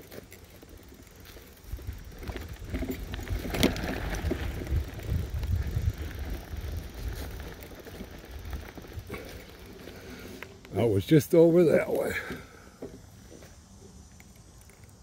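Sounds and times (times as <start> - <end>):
bike tyres rumbling on dirt: 0.0 - 14.1
wind on microphone: 3.2 - 7.2.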